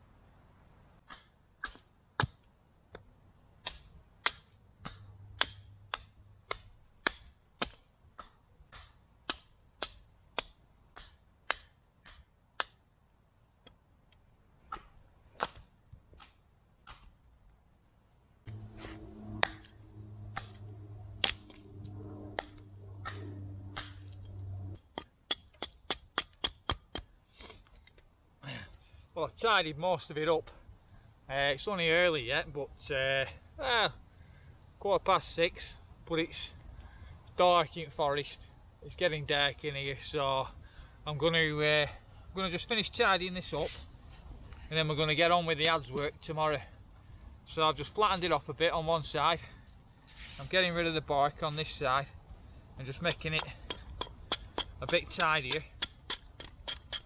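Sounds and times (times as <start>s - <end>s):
low droning hum: 18.5s - 24.8s
blade chopping into log: 21.2s - 21.6s, 22.4s - 24.0s.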